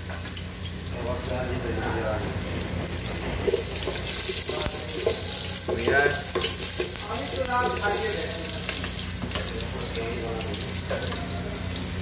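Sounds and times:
onion and garlic sizzling: 0:00.0 - 0:12.0.

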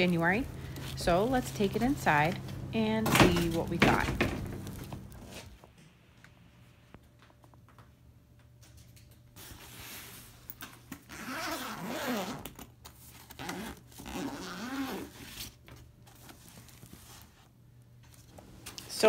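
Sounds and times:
zipper being pulled open: 0:11.0 - 0:12.6, 0:13.3 - 0:15.5.

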